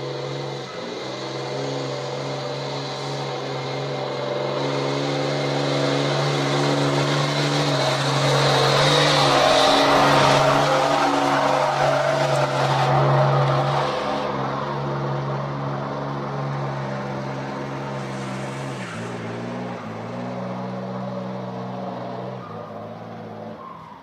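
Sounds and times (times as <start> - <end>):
tyres churning mud: 0.0 - 20.7.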